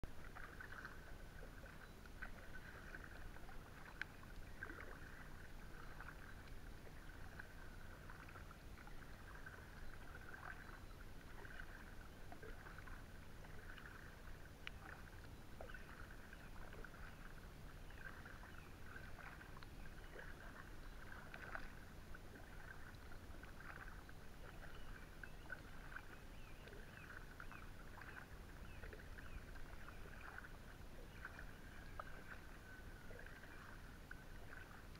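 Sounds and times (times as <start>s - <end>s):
paddle splashing in water: 0.0s - 34.9s
paddle clicking against kayak: 11.3s - 17.3s, 18.0s - 32.5s.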